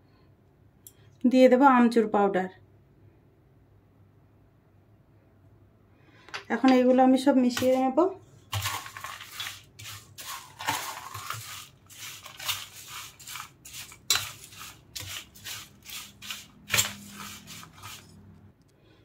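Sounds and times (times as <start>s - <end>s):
spoon stirring crunchy snack mix: 7.4s - 18.2s
spoon striking metal plate: 14.1s - 14.5s.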